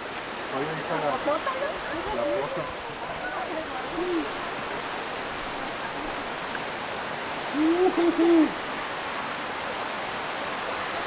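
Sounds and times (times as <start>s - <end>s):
creek rushing: 0.0s - 11.0s
person wordless vocal sound: 7.5s - 8.6s.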